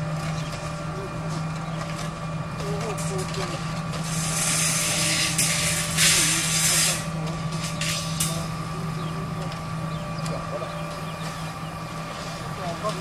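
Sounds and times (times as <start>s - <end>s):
steady low hum: 0.0s - 13.0s
loud hissing: 4.0s - 9.2s.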